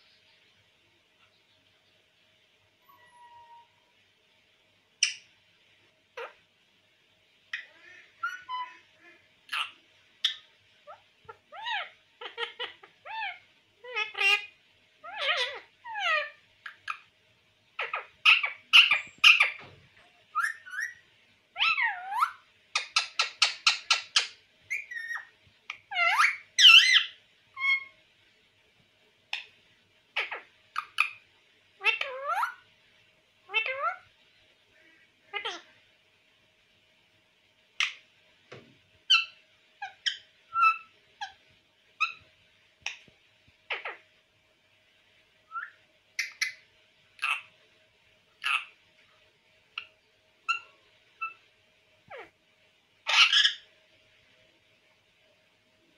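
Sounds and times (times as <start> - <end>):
parakeet whistled calls: 2.8 - 3.8, 7.6 - 8.8, 17.8 - 19.6, 20.3 - 21.0, 21.6 - 27.9, 39.1 - 41.4, 45.5 - 46.6, 50.5 - 51.4, 53.1 - 53.6.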